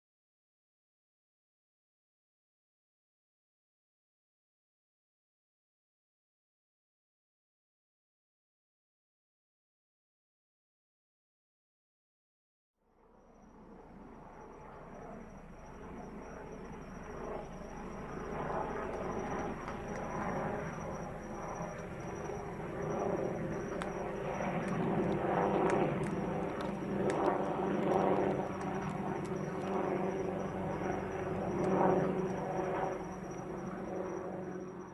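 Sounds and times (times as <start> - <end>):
helicopter flying over: 13.0 - 34.9.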